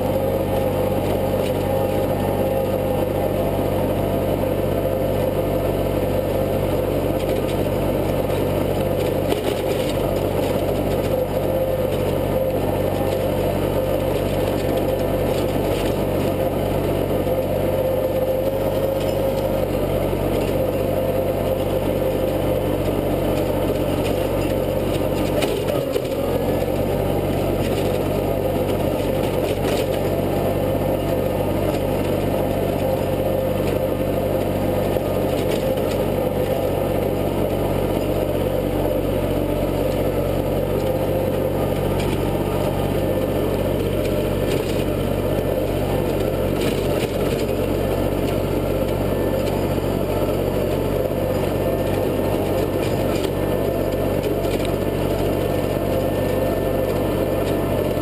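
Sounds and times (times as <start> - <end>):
rotary tiller churning soil: 0.0 - 58.0
tractor engine running under load: 0.0 - 58.0.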